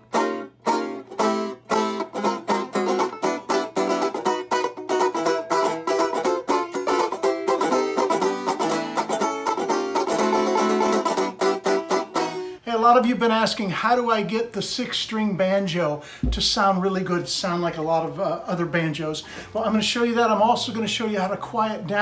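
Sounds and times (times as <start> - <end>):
banjo picked fast: 0.0 - 12.5.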